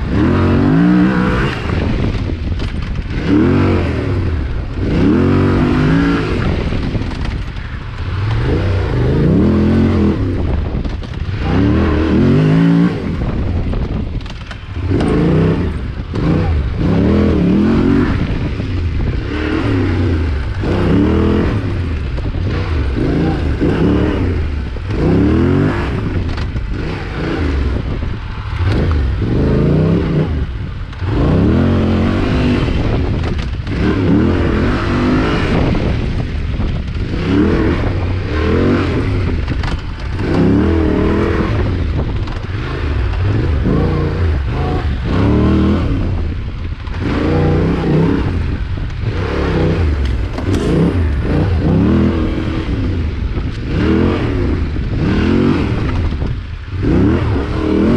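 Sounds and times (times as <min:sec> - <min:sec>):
motorcycle engine revving: 0:00.0 - 0:57.9
clatter and scraping from brush: 0:06.7 - 0:08.5, 0:10.8 - 0:11.4, 0:13.7 - 0:15.8.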